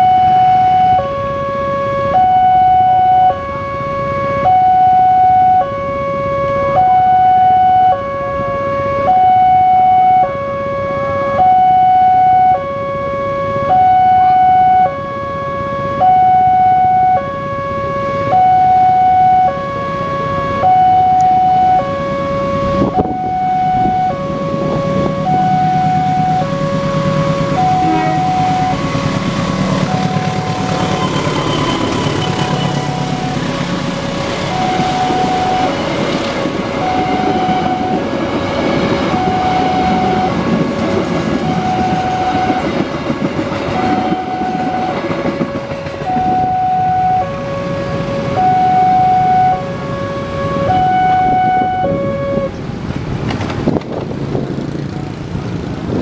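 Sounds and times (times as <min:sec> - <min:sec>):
level crossing two-tone alarm: 0:00.0 - 0:40.6, 0:41.3 - 0:42.9, 0:43.7 - 0:52.5
diesel locomotive rumble: 0:00.0 - 0:56.0.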